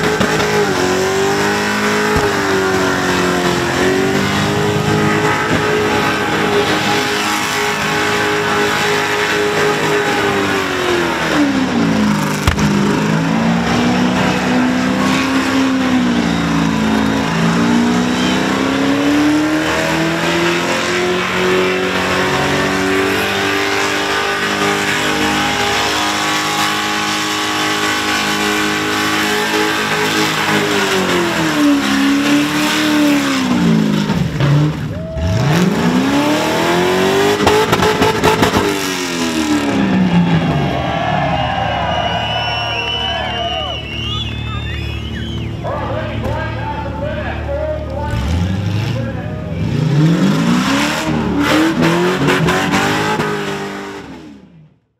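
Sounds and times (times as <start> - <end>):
car engine revving high: 0.0 - 54.7
tyres squealing: 40.9 - 45.6.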